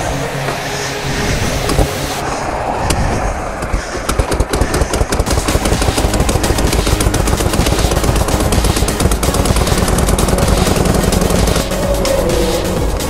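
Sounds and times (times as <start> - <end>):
motorcycle engine popping: 3.6 - 12.2.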